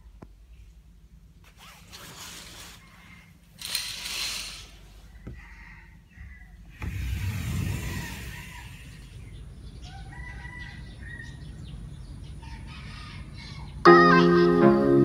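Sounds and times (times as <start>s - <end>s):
birds calling: 5.2s - 13.9s
low microphone rumble: 6.7s - 9.9s.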